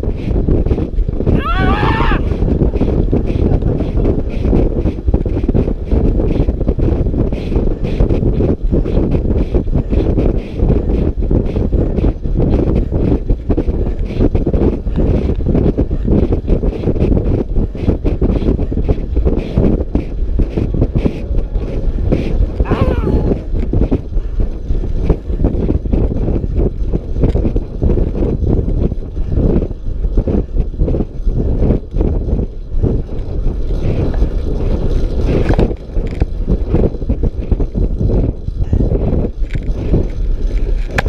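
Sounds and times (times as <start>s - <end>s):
bicycle tyre noise: 0.0s - 41.0s
wind buffeting microphone: 0.0s - 41.0s.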